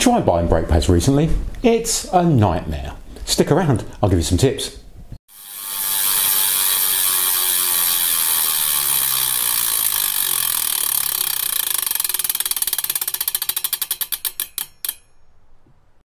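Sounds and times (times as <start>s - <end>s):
bicycle freewheel ticking: 5.3s - 15.1s.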